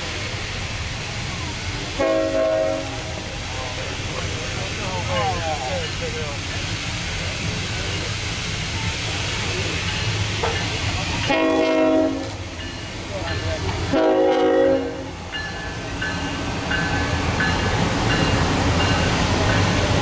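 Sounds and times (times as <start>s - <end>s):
steam whistle blasts: 2.0s - 3.0s, 11.3s - 12.5s, 13.9s - 15.2s.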